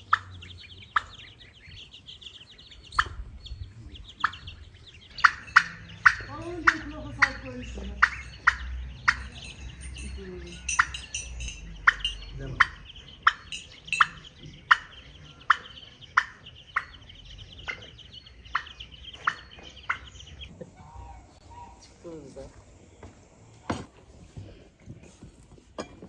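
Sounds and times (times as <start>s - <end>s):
goslings peeping: 0.0s - 22.1s
turkey calling: 0.0s - 22.1s.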